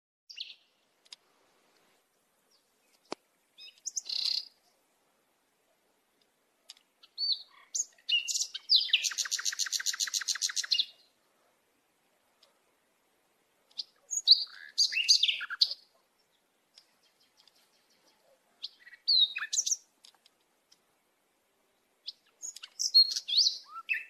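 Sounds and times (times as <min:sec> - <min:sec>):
songbird chirping: 0:00.3 - 0:24.0
fast bird trill: 0:07.1 - 0:10.9.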